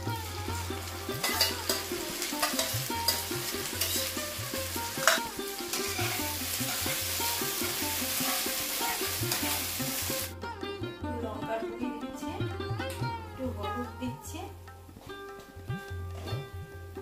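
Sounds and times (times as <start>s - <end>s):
paste sizzling in oil: 0.0s - 10.3s
background music: 0.0s - 17.0s
spatula stirring and scraping: 1.1s - 7.0s.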